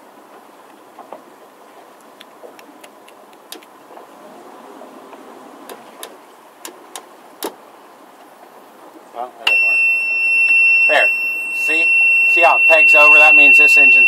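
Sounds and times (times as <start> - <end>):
boat engine idling: 0.0 - 9.4
sharp clicks and taps: 2.1 - 3.7, 5.7 - 7.6.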